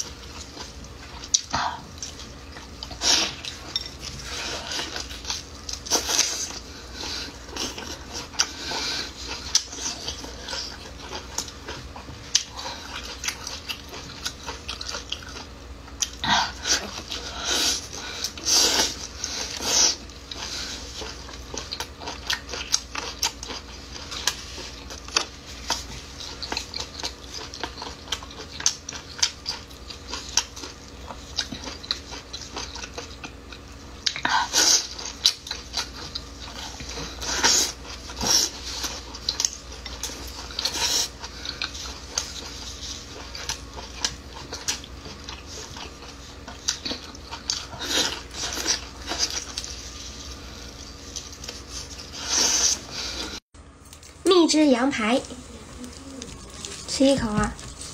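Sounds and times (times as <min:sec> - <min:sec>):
person chewing with wet clicks: 0:00.0 - 0:54.3, 0:55.2 - 0:57.9.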